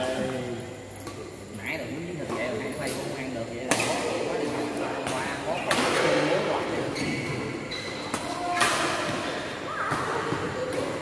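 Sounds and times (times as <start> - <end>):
racket hitting shuttlecock: 5.0 - 6.3, 7.3 - 11.0
shoes squeaking on court: 6.7 - 11.0.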